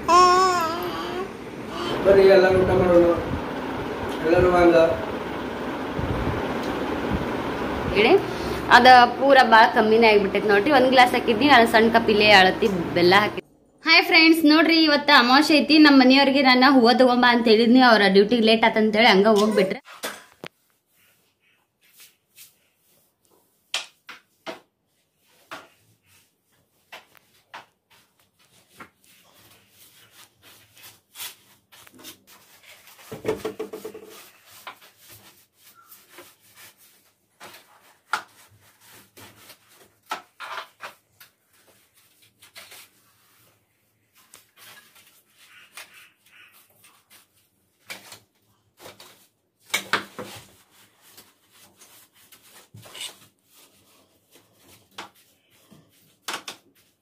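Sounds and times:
broom scraping ceiling: 0:24.3 - 0:40.4.

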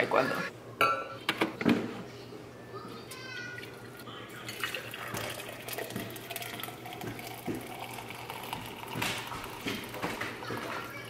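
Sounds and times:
coffee pouring into metal tumbler: 0:03.6 - 0:10.8.

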